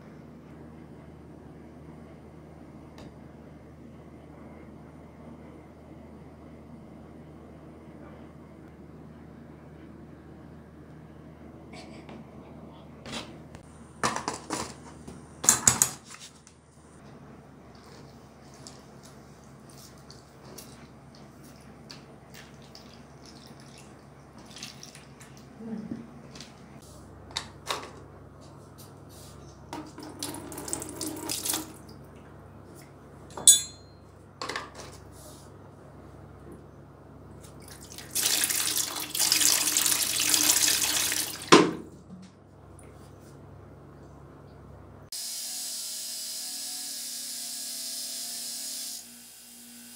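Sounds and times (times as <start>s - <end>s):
steady low hum: 0.0s - 15.4s
liquid dripping and splashing: 19.4s - 25.5s, 37.6s - 41.5s.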